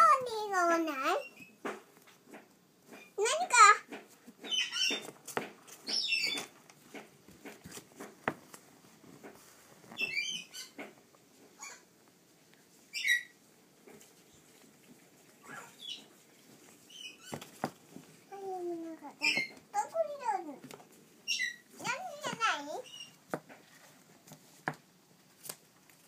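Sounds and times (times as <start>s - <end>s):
parrot chick squeaky calls: 4.4s - 5.1s, 5.8s - 6.5s, 10.0s - 10.8s, 11.6s - 11.9s, 12.9s - 13.4s, 15.4s - 16.1s, 16.9s - 17.4s, 19.2s - 19.6s, 21.2s - 21.7s, 22.8s - 23.2s.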